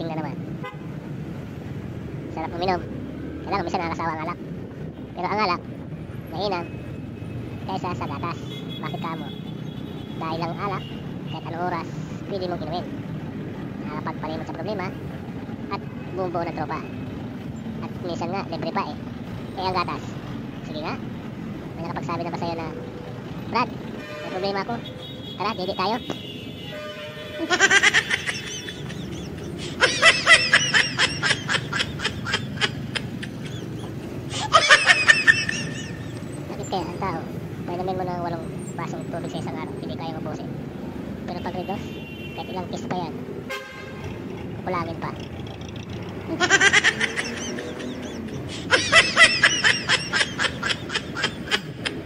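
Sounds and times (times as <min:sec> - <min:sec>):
high-pitched laughter: 0:27.4 - 0:36.3, 0:46.0 - 0:52.0
high-pitched sped-up giggling: 0:27.4 - 0:36.9, 0:45.6 - 0:52.0.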